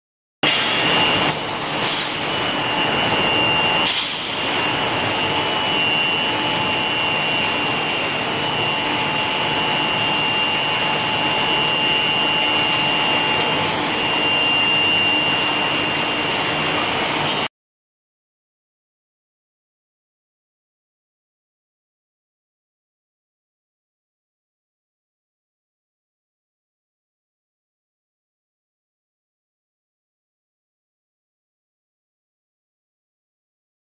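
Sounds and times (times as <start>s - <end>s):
high whine: 0.4s - 17.5s
machine hiss: 0.5s - 2.6s, 3.8s - 4.6s.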